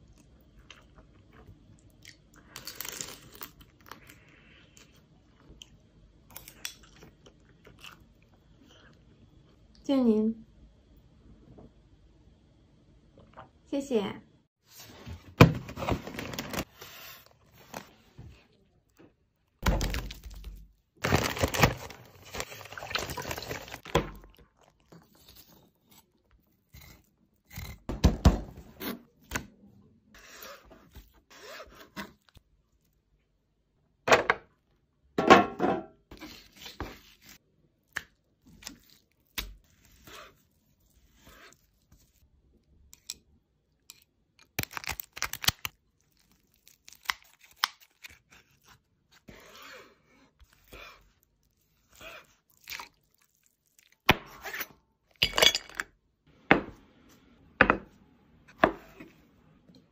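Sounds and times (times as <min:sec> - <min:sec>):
knife scraping and cutting fish: 0:30.2 - 0:32.4, 0:38.6 - 0:42.2.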